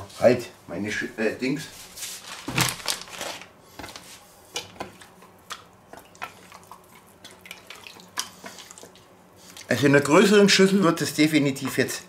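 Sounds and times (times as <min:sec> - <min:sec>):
plastic bag rustling: 0:01.7 - 0:04.1
meat squelching in marinade: 0:02.4 - 0:10.2.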